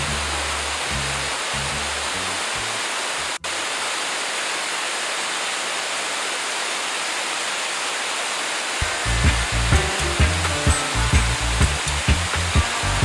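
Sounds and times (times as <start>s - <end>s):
waterfall rushing: 0.0s - 13.0s
music with heavy bass beat: 8.8s - 13.0s.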